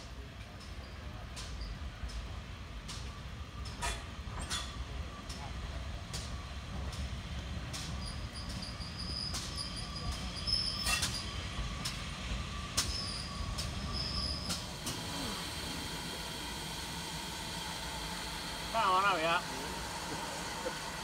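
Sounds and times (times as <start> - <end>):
steam locomotive rumbling: 0.0 - 21.0
short high squeals: 12.9 - 14.6.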